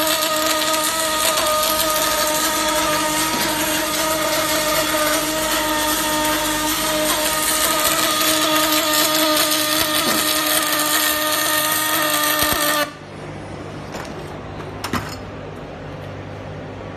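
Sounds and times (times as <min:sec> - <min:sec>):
welding arc crackling: 0:00.0 - 0:13.0
low background hum: 0:00.0 - 0:16.9.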